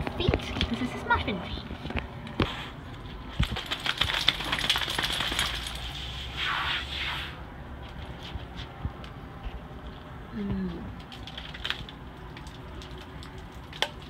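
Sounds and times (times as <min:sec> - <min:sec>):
water spraying and spattering: 0:03.6 - 0:07.3.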